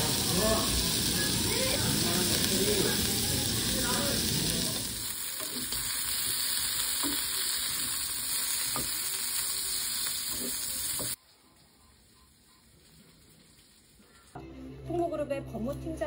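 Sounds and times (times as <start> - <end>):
meat sizzling on a grill: 0.0 - 11.2, 12.6 - 14.3
vegetables sizzling in a frying pan: 0.0 - 11.2.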